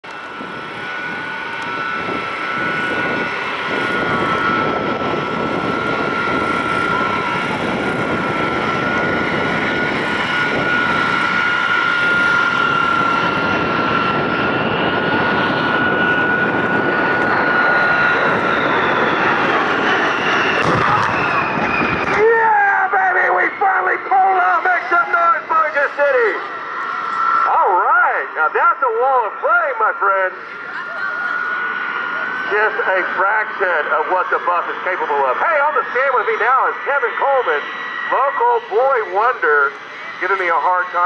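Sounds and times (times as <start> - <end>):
jet engines with high whine: 0.0 - 41.0.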